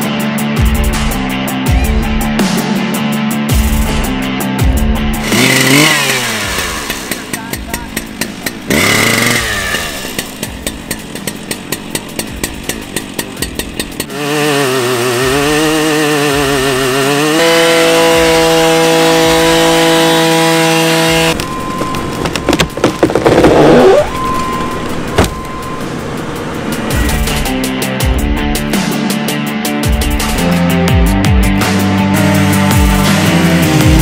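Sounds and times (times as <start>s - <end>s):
chainsaw running: 5.2s - 27.6s, 32.4s - 34.0s
loud irregular knocks: 21.8s - 23.6s.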